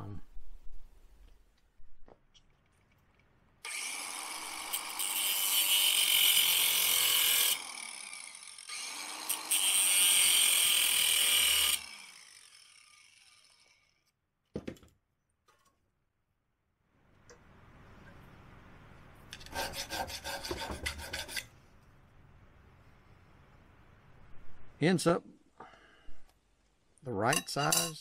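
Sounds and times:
angle grinder cutting steel: 3.7s - 14.0s.

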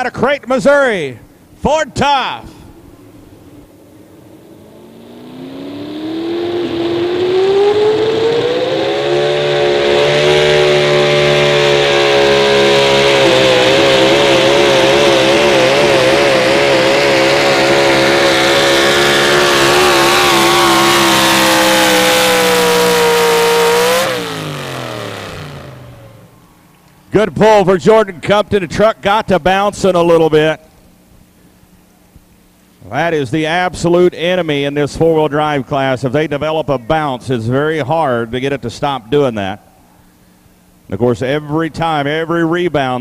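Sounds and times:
truck engine at full throttle: 2.4s - 26.6s.

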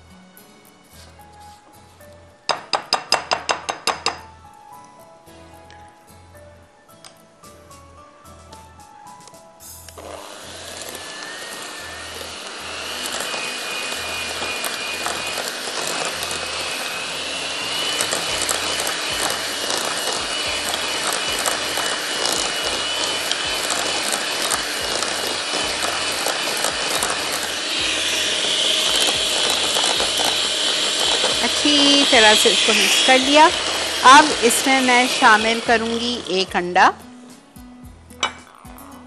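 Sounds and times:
electric hand mixer whining: 10.0s - 37.0s.

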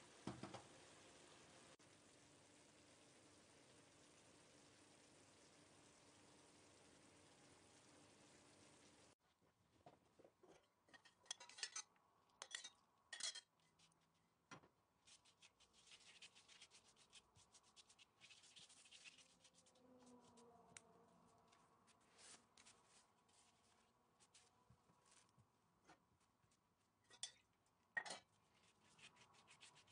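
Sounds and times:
pastry sheets rustling and crackling: 15.0s - 20.4s, 21.2s - 29.9s
pastry brush swishing: 15.0s - 20.5s, 21.4s - 25.3s, 28.4s - 29.9s.

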